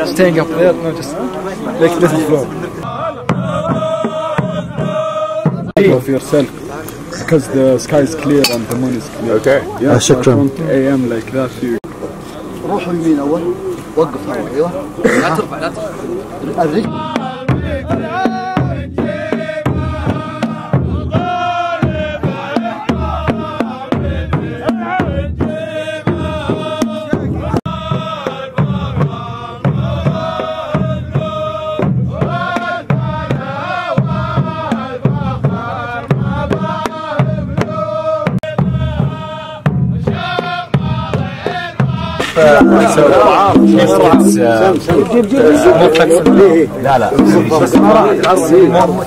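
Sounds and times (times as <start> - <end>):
frame drums beating: 0.0 - 10.8, 12.8 - 49.0
men chanting together: 0.0 - 11.8, 12.4 - 49.0.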